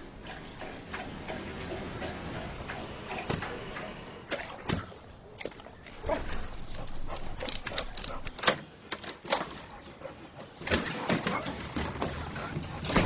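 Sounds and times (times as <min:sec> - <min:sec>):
dog lapping water: 0:00.0 - 0:04.7.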